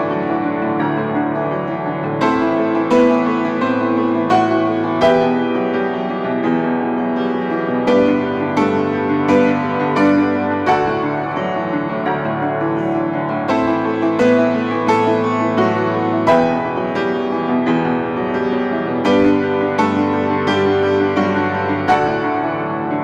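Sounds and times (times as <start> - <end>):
slow piano piece: 0.0 - 23.0.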